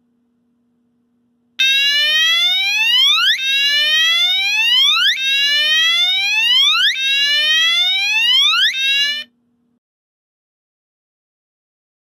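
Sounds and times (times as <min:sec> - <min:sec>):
faint steady hum: 0:00.0 - 0:09.8
fire alarm horn whooping: 0:01.6 - 0:09.3.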